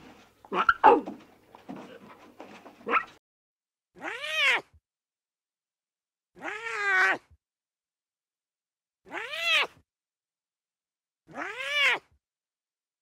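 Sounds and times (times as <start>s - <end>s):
lion cub mewing: 0.5s - 1.2s, 4.0s - 4.6s, 6.4s - 7.3s, 9.1s - 9.7s, 11.3s - 12.0s.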